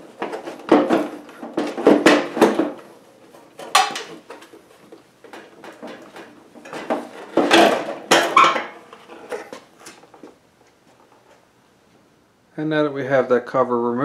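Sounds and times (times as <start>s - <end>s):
plastic knocks rattles and scrapes: 0.0s - 10.4s.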